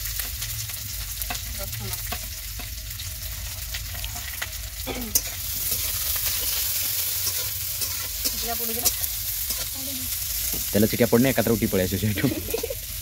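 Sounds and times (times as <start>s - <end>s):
onion sizzling in oil: 0.0s - 13.0s
metal spatula scraping pan: 5.1s - 10.6s.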